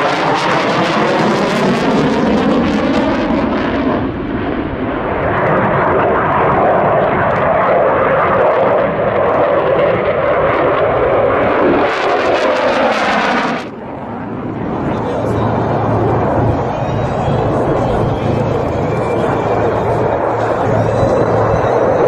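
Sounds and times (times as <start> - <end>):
jet fighter flying past: 0.0 - 22.0.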